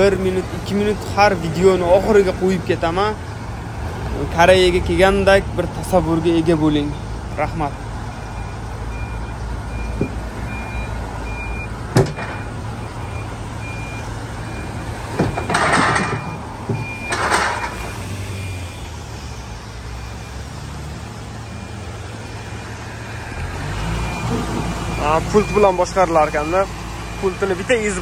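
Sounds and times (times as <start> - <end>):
forklift idling: 0.0 - 28.0
forklift warning beeps: 6.9 - 19.3, 19.9 - 20.6, 21.4 - 28.0
metal clank: 11.9 - 12.6, 15.1 - 17.9.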